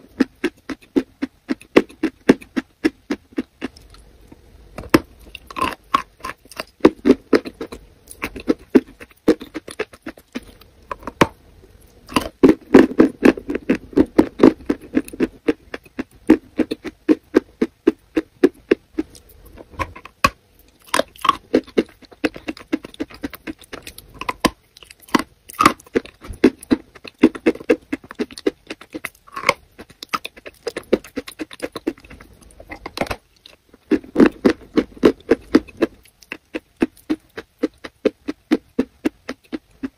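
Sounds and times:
wet sticky chewing: 4.8 - 39.9.

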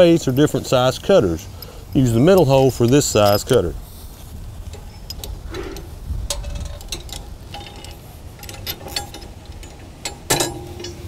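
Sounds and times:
metal spring clinking and rattling: 0.0 - 11.0
metal clank: 4.7 - 11.0.

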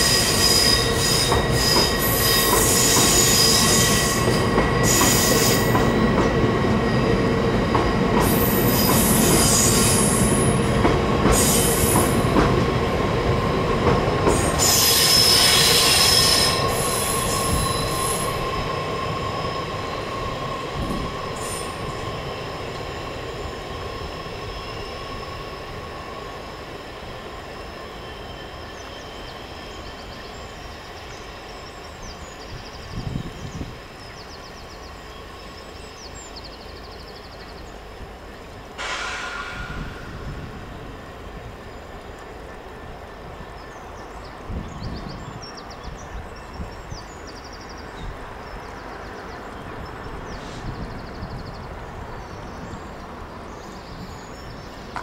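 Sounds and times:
train wheels squealing: 0.0 - 12.5, 14.2 - 36.9, 38.8 - 40.7
train rumble: 0.0 - 55.0.

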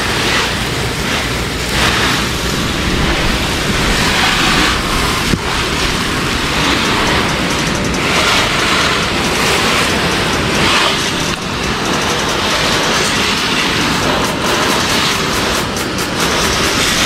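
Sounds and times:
water spraying over car: 0.0 - 17.0.

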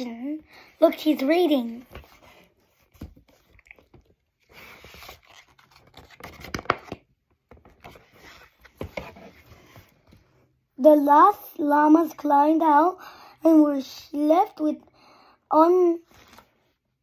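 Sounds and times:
paper pages rustling: 1.6 - 10.3, 16.0 - 16.8.

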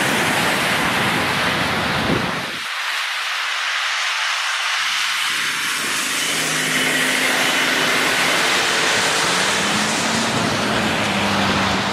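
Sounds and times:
road vehicle passing: 3.8 - 11.9.

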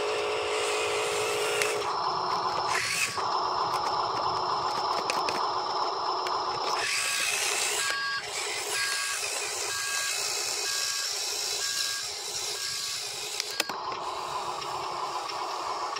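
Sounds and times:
reversing beeper: 7.6 - 13.8.

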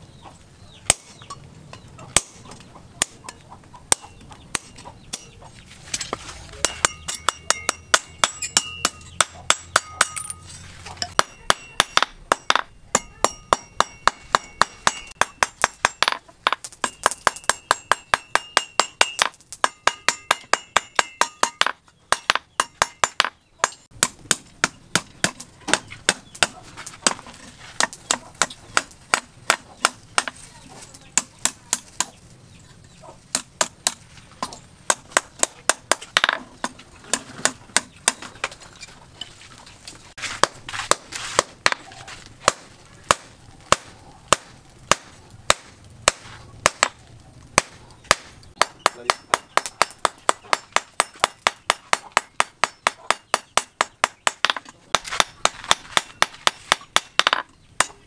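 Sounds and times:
hammer striking steel on anvil: 3.0 - 5.4, 6.6 - 27.2, 47.6 - 58.0.

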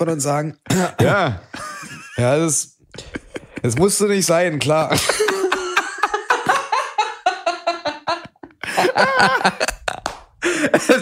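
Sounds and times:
men laughing: 0.8 - 11.0.

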